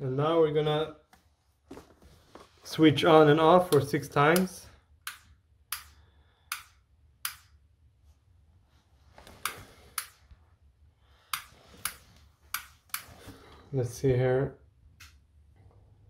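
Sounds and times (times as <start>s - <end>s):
light switch clicking: 3.7s - 7.5s.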